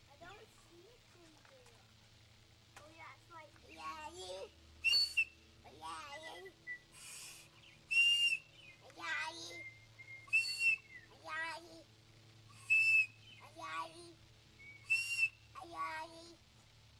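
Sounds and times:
child imitating bird calls: 3.7s - 11.9s, 12.5s - 16.4s
person whistling bird calls: 4.8s - 5.4s, 6.2s - 8.8s, 9.4s - 11.1s, 12.5s - 13.4s, 14.6s - 15.4s.

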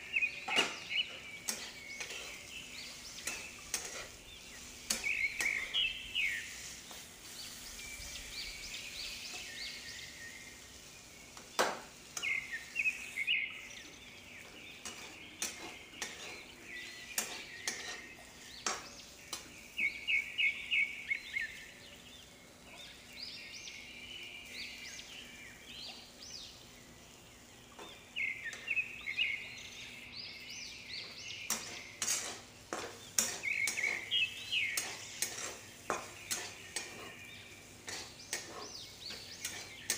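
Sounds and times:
low frying sizzle: 0.0s - 39.9s
metal spatula scraping a pan: 0.5s - 8.3s, 14.4s - 19.4s, 31.5s - 39.9s.

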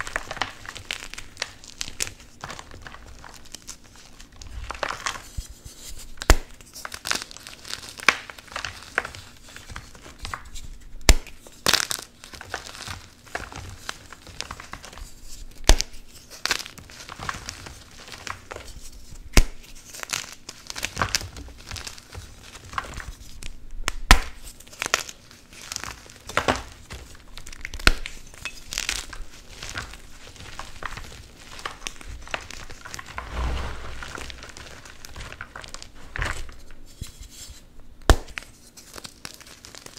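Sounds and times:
chalk crunching and crumbling: 11.3s - 23.5s, 24.4s - 37.6s.

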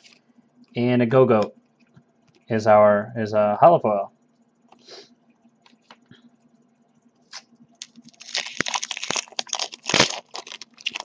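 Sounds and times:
packaging crinkling: 7.3s - 11.0s.

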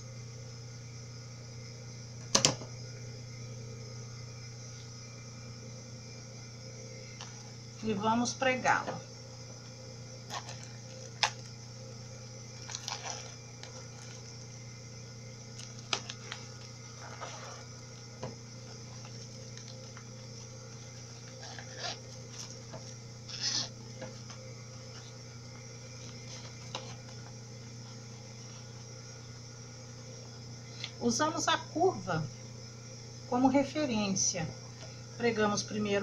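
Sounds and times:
steady low hum: 0.0s - 36.0s
plastic bag crinkling: 10.3s - 11.5s, 12.5s - 14.4s.

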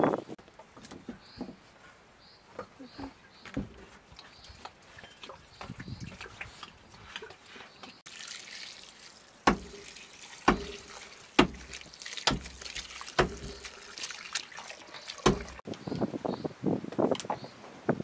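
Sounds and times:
hand swishing herbs in water: 6.1s - 15.6s
water trickling onto herbs: 8.0s - 15.7s
splash or knock on metal bowl: 9.4s - 14.1s, 15.0s - 15.6s.

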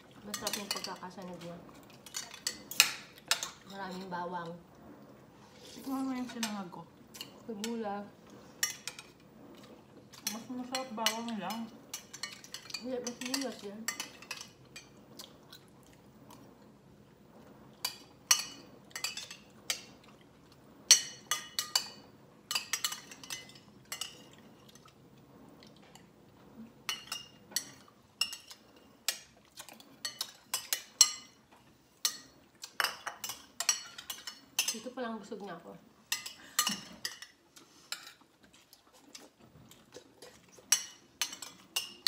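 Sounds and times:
chewing: 37.6s - 40.8s.

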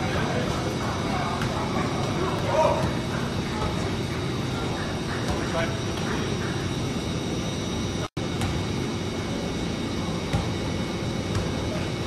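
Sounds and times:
air-handling machinery roar: 0.0s - 12.0s
soccer ball being kicked: 1.3s - 6.3s, 10.2s - 11.8s.

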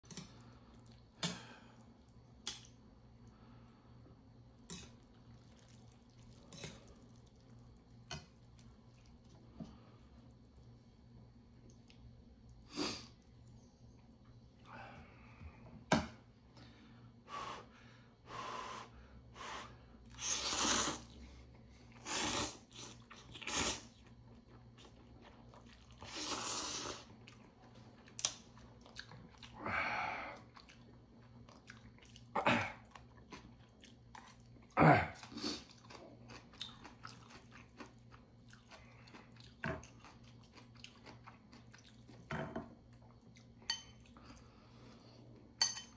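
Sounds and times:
chewing: 4.6s - 10.6s, 22.7s - 29.6s, 30.4s - 42.3s
person slurping noodles: 20.2s - 21.2s, 22.0s - 23.9s, 26.0s - 27.1s.

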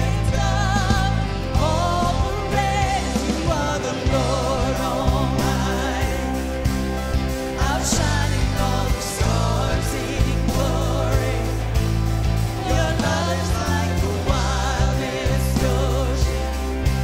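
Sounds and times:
person singing: 0.0s - 6.6s
bass guitar: 0.0s - 17.0s
drums: 0.0s - 17.0s
electric guitar: 0.0s - 17.0s
keyboard: 0.0s - 17.0s.

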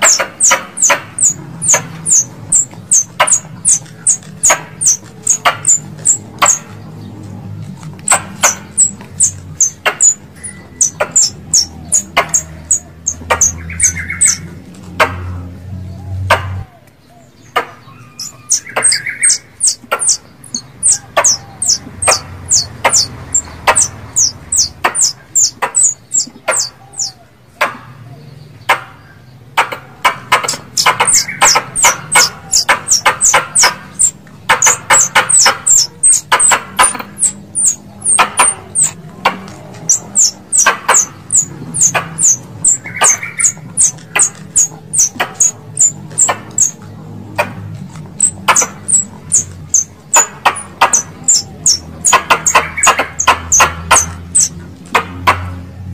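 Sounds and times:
squirrel calls high chips: 0.0s - 6.6s, 8.0s - 14.5s, 18.0s - 27.2s, 30.4s - 39.0s, 39.8s - 46.8s, 48.1s - 54.6s.

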